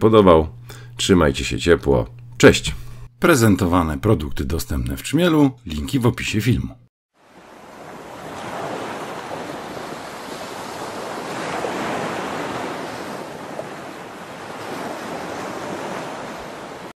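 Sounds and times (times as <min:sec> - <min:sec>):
rushing water: 0:07.2 - 0:16.9.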